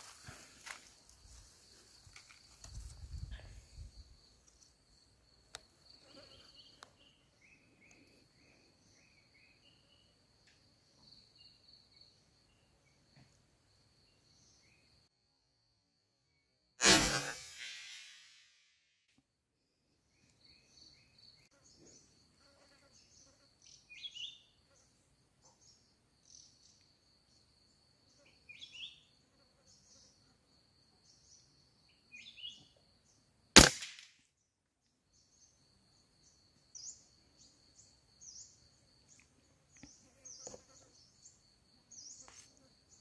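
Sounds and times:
rifle shot: 16.8 - 18.3, 33.6 - 34.1
bird chirps: 23.0 - 24.5, 28.2 - 29.1, 31.1 - 32.8.

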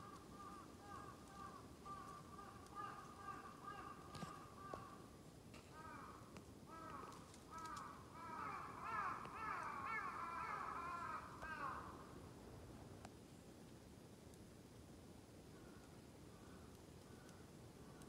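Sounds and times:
crows cawing: 0.0 - 5.0, 5.7 - 12.1.

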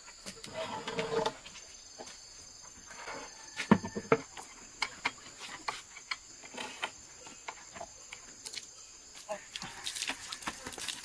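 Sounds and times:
plastic buckets and pole clattering: 0.1 - 2.2, 2.8 - 8.3.

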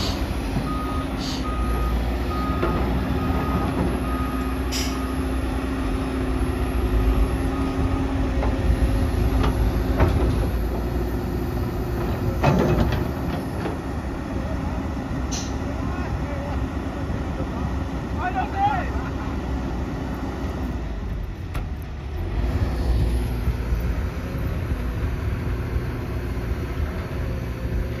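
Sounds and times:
diesel engines rumbling: 0.0 - 28.0
reversing alarm beeping: 0.6 - 5.4, 6.9 - 8.1.

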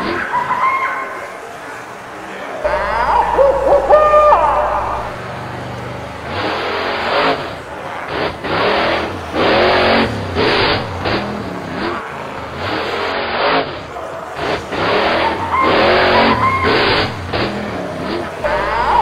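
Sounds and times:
cartoon monster truck engine revving: 0.0 - 19.0
gliding pitch sound effect: 2.6 - 5.7
tyre skid: 3.0 - 19.0.

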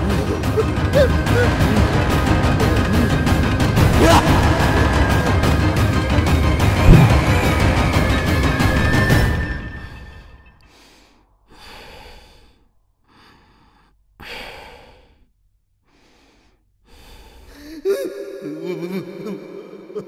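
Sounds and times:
music: 0.0 - 10.7.

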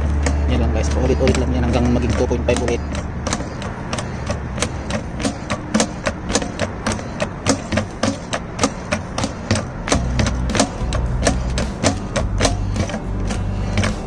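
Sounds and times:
hand pump lever clacking: 0.0 - 14.0.

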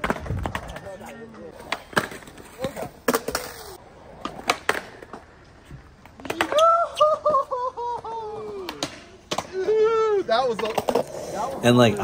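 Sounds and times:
skateboard clacking on concrete: 0.0 - 6.7, 10.4 - 12.0.

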